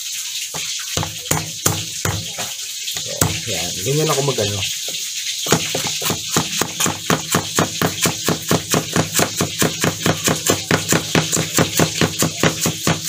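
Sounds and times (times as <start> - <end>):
cleaver chopping on plastic board: 5.5 - 13.0.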